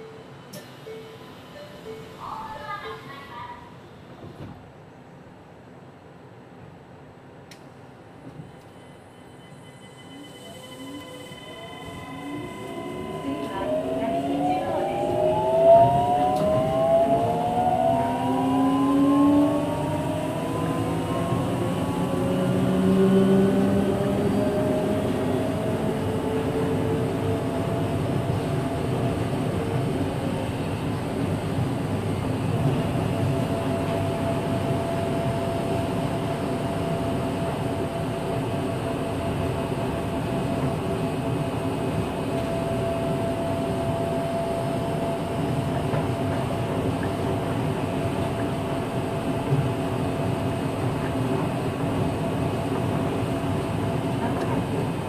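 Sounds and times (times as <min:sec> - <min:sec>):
train rolling noise: 0:00.0 - 0:55.0
faint held tone: 0:08.4 - 0:15.5
inverter whine rising in pitch: 0:11.2 - 0:25.0.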